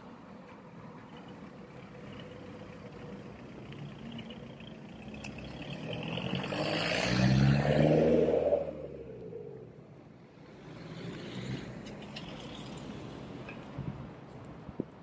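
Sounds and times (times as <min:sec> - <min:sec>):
car approaching: 0:00.0 - 0:14.3.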